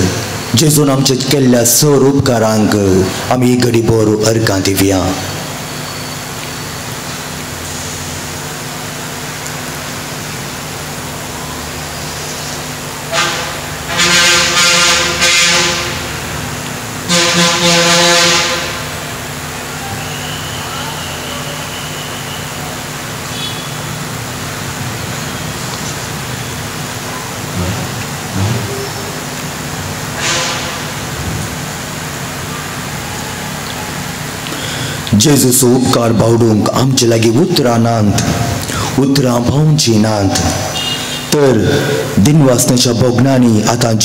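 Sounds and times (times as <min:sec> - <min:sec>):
steady hum: 0:00.0 - 0:44.0
vehicle horn honking: 0:13.1 - 0:16.2, 0:17.0 - 0:19.0, 0:23.2 - 0:24.0, 0:40.7 - 0:41.8.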